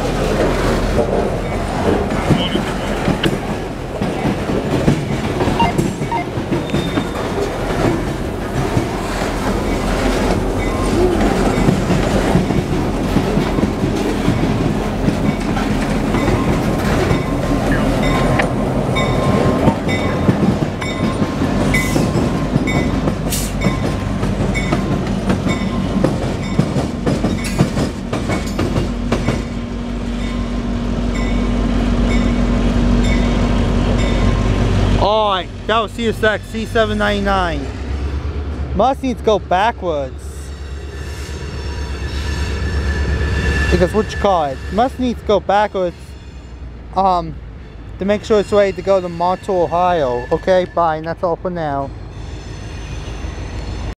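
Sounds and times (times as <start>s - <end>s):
wheels clicking over rail joints: 0.0s - 29.6s
locomotive engine drone: 0.0s - 53.9s.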